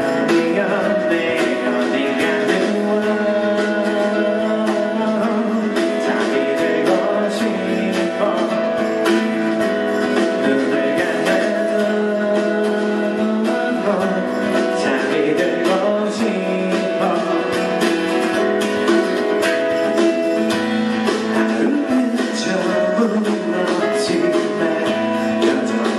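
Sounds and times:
acoustic guitar strumming: 0.0s - 25.9s
man singing: 0.0s - 25.9s.

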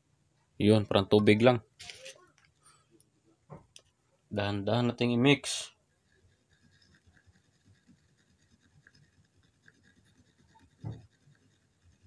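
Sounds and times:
stick scratching while stirring: 5.4s - 12.0s.

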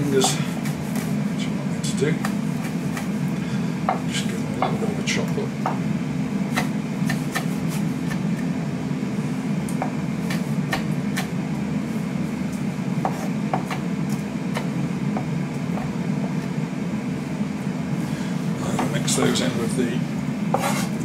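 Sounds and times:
steady low hum: 0.0s - 21.0s
knife chopping on wooden board: 2.2s - 3.2s, 6.5s - 8.5s, 9.8s - 11.4s, 13.0s - 16.5s, 20.5s - 21.0s.

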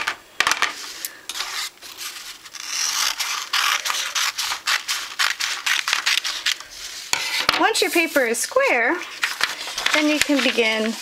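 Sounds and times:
scissors snipping paper: 2.5s - 6.7s, 9.2s - 11.0s
paper rustling: 9.0s - 11.0s.

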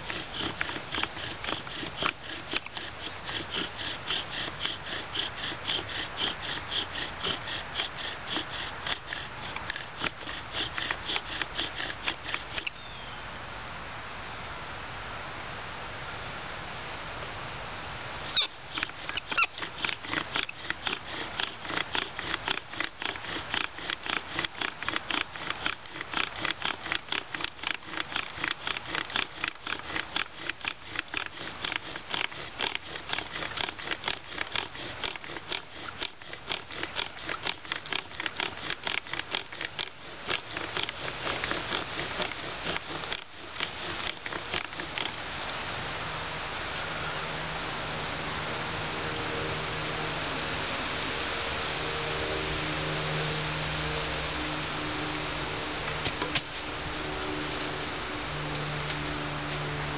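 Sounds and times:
bow drill scraping: 0.0s - 12.9s, 18.2s - 45.4s.

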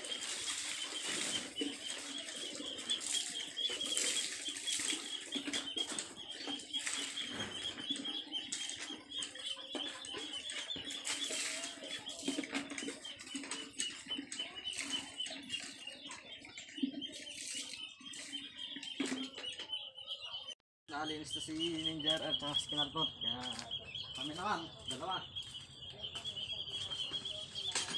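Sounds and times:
water splashing and pattering: 0.0s - 19.9s
high-pitched chirping: 0.0s - 27.9s.

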